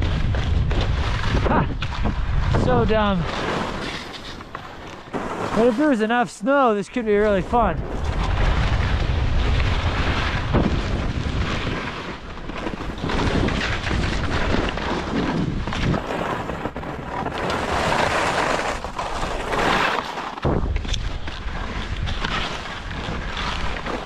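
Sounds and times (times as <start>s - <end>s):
wind buffeting microphone: 0.0s - 3.8s, 7.0s - 18.5s
skis scraping over snow: 0.0s - 24.0s.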